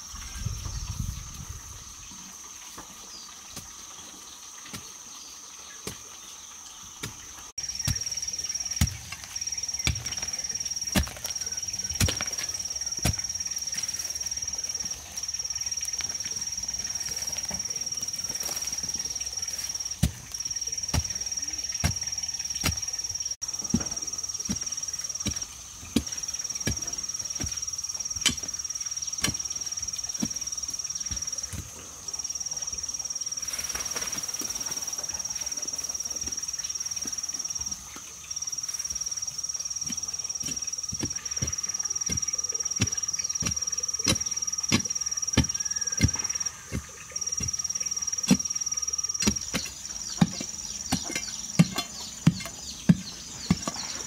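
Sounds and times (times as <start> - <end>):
hoe chopping dry soil: 7.0 - 31.8, 39.8 - 54.0
high-pitched insect drone: 7.6 - 54.0.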